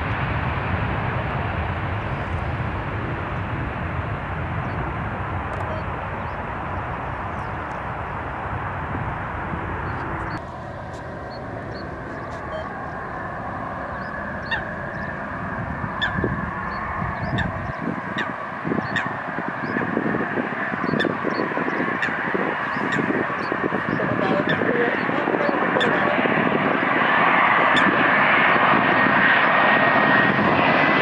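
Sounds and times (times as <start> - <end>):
jet airliner engines rumbling: 0.0 - 31.0
geese honking: 9.9 - 19.9, 20.7 - 26.2.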